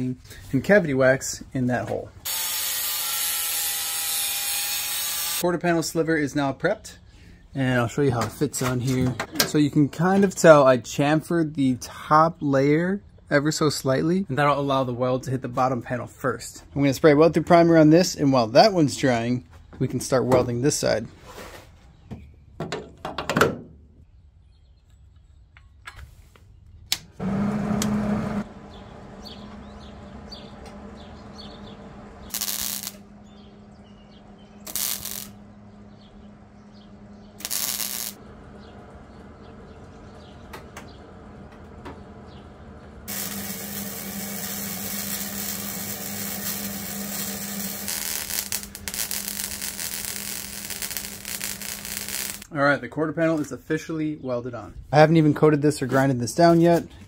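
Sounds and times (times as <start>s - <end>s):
welder welding metal: 2.2s - 5.5s, 32.2s - 33.4s, 34.6s - 35.4s, 37.4s - 38.2s, 43.1s - 52.5s
steady low hum: 27.2s - 53.9s.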